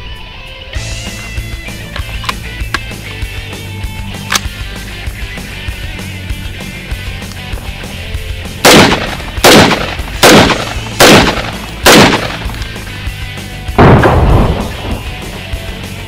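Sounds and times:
background music: 0.0s - 16.0s
rifle shots: 8.6s - 12.8s, 13.8s - 15.4s.

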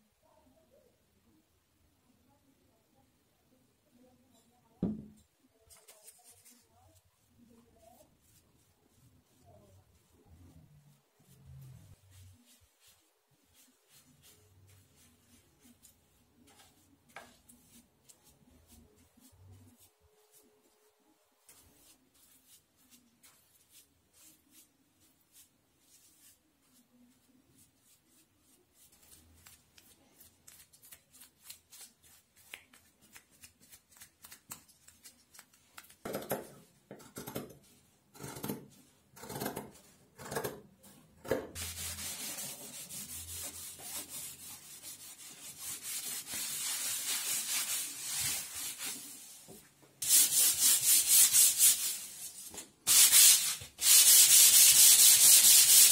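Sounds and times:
sanding block rubbing on wood: 41.6s - 48.9s, 50.0s - 52.1s, 52.9s - 55.9s.

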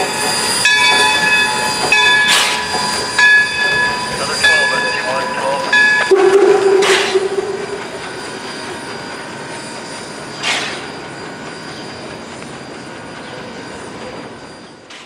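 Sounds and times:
train wheels rumbling on rail: 0.0s - 15.0s
faint thin squeal: 4.2s - 12.1s.

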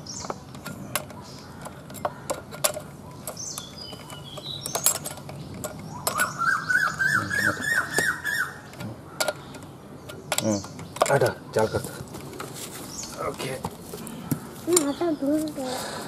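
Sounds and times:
bird whistling and chirping: 5.9s - 8.7s.

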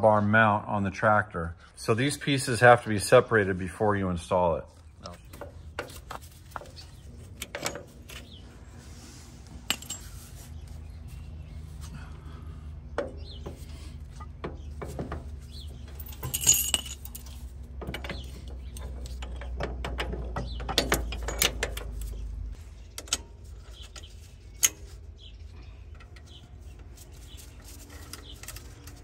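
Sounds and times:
low steady rumble: 1.5s - 29.0s
steel parts clinking and knocking: 5.3s - 8.4s, 9.6s - 10.4s, 14.4s - 22.3s.

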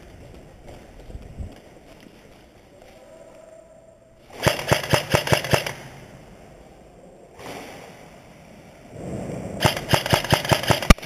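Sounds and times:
airsoft rifle shots: 4.3s - 6.0s, 9.6s - 11.0s.

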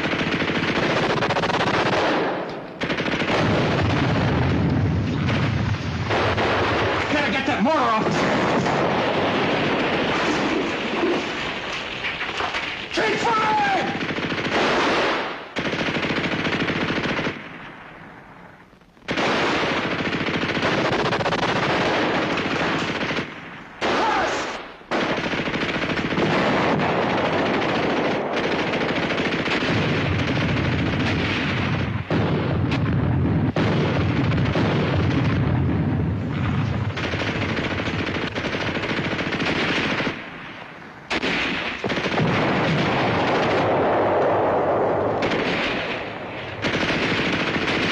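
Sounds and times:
machine-gun and rifle fire: 0.0s - 17.8s, 19.1s - 47.9s.

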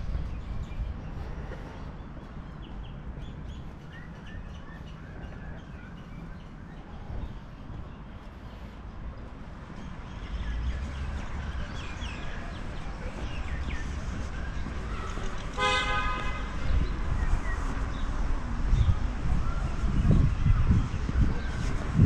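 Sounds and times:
steady low rumble: 0.0s - 15.5s
birds chirping: 0.0s - 22.0s
vehicle horn toot: 15.6s - 16.5s.

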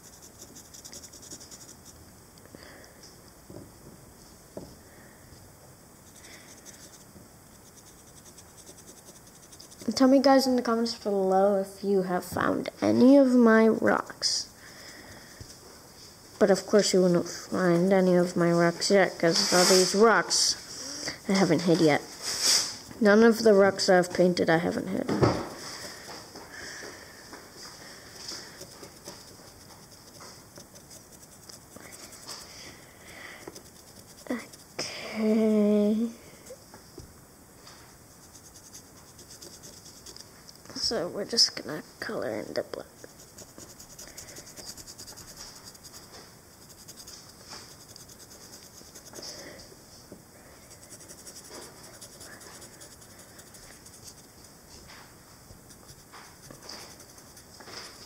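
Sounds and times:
marker rubbing on rock: 0.0s - 2.0s, 6.0s - 10.1s, 28.2s - 34.8s, 38.1s - 40.3s, 42.9s - 49.4s, 50.7s - 54.6s, 55.5s - 58.0s.

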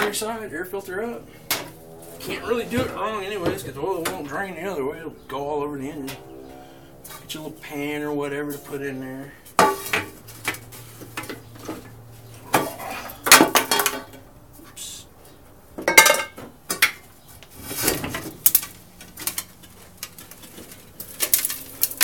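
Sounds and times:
metal drain pan clanking: 9.6s - 10.6s, 12.5s - 14.2s, 15.8s - 17.0s.

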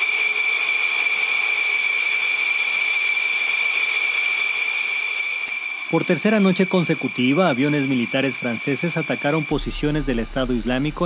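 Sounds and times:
jet engines idling: 3.7s - 11.0s.

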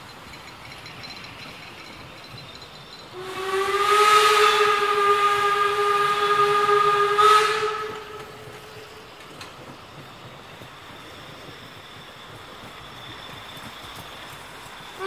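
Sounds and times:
steam hissing: 0.0s - 15.0s
steam whistle blast: 3.2s - 8.6s.

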